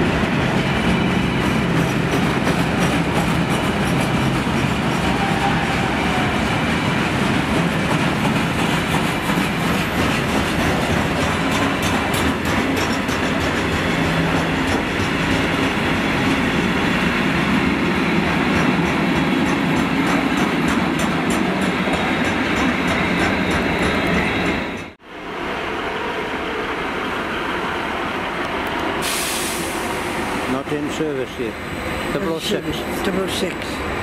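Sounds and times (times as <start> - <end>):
freight train rolling past: 0.0 - 34.0
wheels clicking over rail joints: 7.5 - 15.8.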